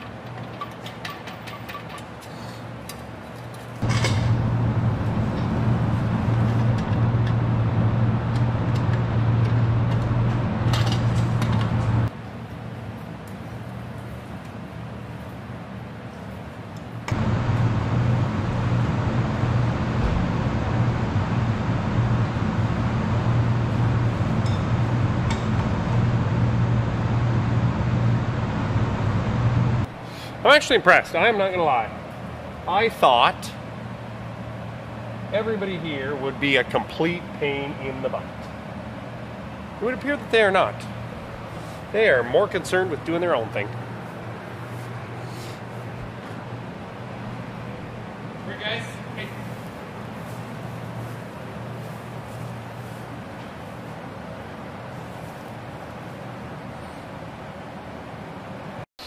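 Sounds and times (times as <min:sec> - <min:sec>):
low machine drone with hum: 0:03.8 - 0:12.1, 0:16.8 - 0:30.2
low machine hum: 0:03.8 - 0:30.4, 0:31.0 - 0:58.8.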